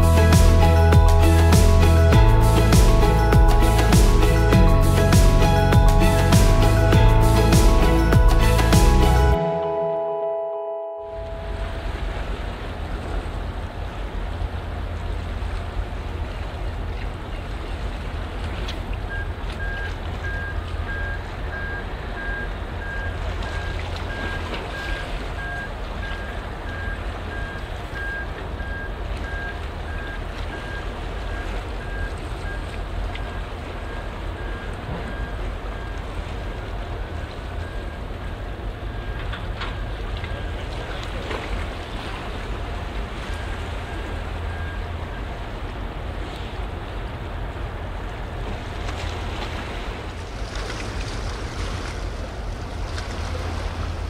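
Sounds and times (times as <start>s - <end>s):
faint pulsing high tone: 0.0s - 12.4s
low rumble: 0.0s - 15.7s
wind and water noise: 0.0s - 54.0s.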